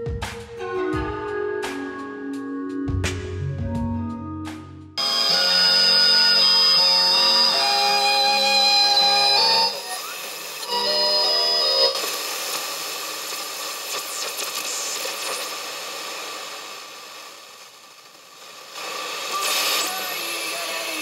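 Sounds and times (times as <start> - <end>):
radio static hiss: 5.0 - 21.0
steady radio tones: 5.0 - 21.0.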